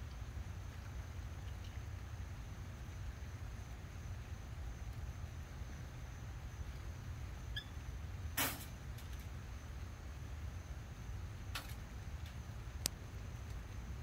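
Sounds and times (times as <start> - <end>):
faint chirps: 7.5 - 7.9.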